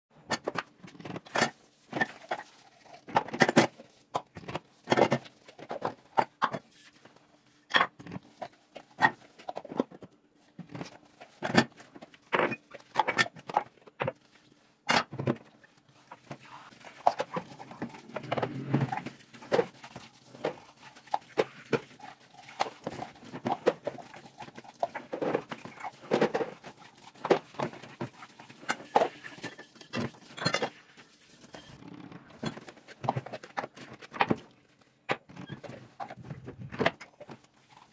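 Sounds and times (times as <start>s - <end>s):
plastic dishes clattering: 0.2s - 37.9s
sponge rubbing dishes: 15.8s - 32.9s.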